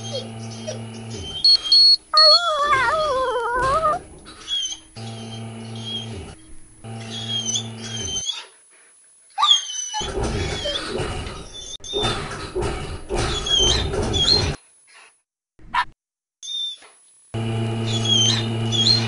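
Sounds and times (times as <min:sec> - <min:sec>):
massage chair motor hum: 0:00.0 - 0:08.2, 0:17.3 - 0:19.0
dog whining: 0:00.0 - 0:08.5, 0:09.3 - 0:12.1, 0:13.3 - 0:14.6, 0:17.8 - 0:19.0.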